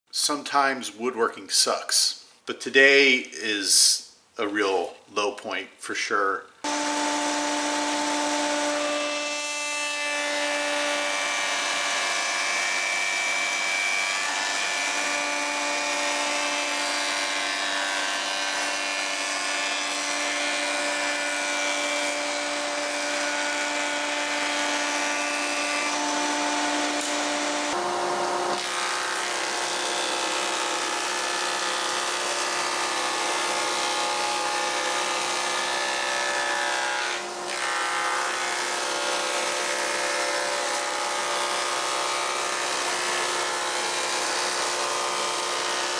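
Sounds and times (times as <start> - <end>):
jointer motor running: 6.6 - 12.8, 13.8 - 36.4.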